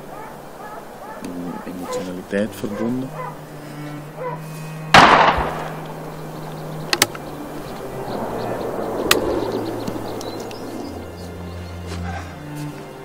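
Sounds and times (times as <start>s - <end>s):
low steady hum: 0.0s - 13.0s
gunshot echo off mountains: 5.0s - 5.8s
sharp clicks: 6.8s - 7.3s, 9.0s - 10.6s.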